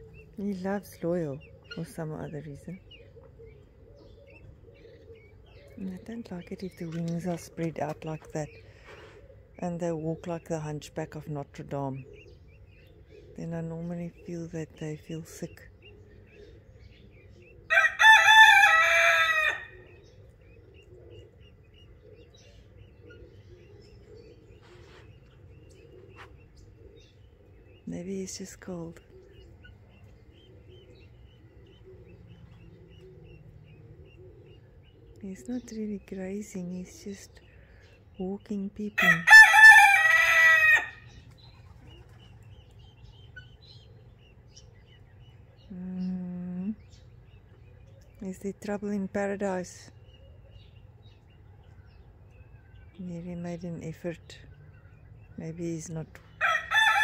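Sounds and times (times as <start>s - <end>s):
high peeping chirps: 0.0s - 17.8s, 18.6s - 57.0s
rooster crowing: 17.7s - 19.8s, 39.1s - 41.0s, 56.4s - 57.0s.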